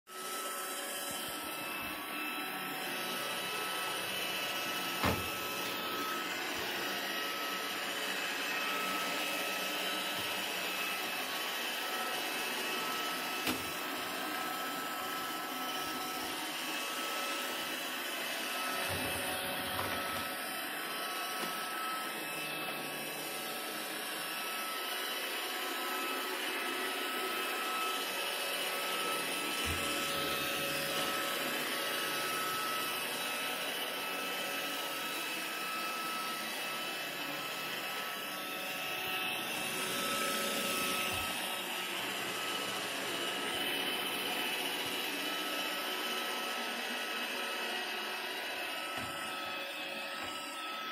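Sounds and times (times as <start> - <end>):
robot vacuum whirring: 0.1 - 50.9.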